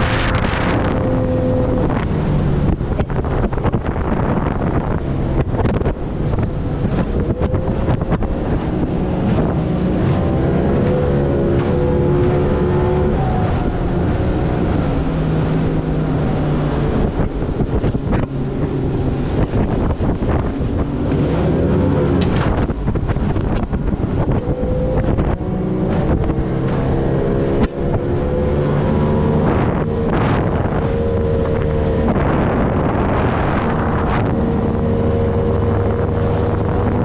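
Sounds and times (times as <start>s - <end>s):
outboard motor running: 0.0s - 37.0s
wind buffeting microphone: 0.0s - 37.0s.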